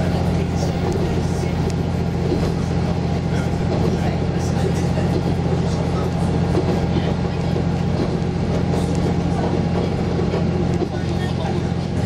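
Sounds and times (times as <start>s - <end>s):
diesel engine humming: 0.0s - 12.0s
wheels rolling on track: 0.0s - 12.0s.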